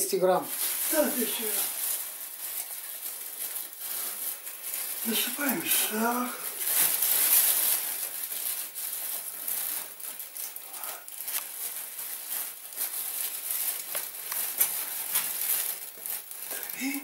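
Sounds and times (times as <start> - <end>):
plastic bag crinkling: 0.0 - 17.0.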